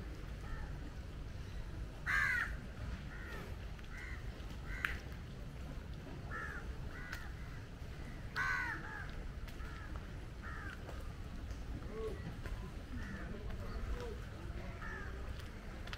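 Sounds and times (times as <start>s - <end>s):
crows cawing: 2.0s - 5.1s, 6.3s - 10.9s, 12.9s - 13.3s, 14.7s - 15.3s.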